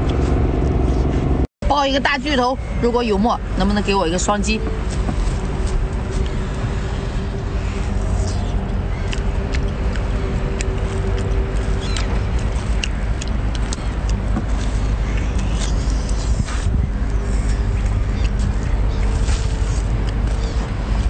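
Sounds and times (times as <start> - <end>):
low rumble: 0.0 - 21.0
wet chewing mouth clicks: 8.2 - 20.7.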